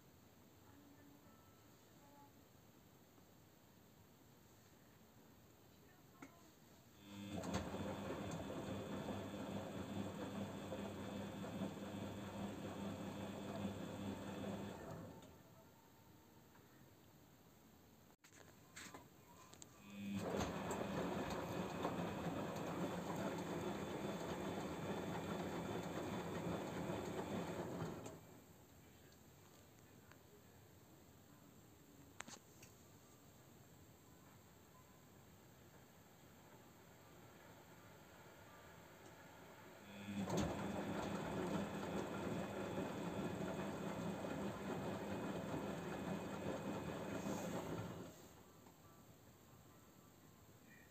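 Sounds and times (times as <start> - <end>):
washing machine drum turning: 7.1 - 14.9, 20.2 - 28.2, 39.9 - 48.1.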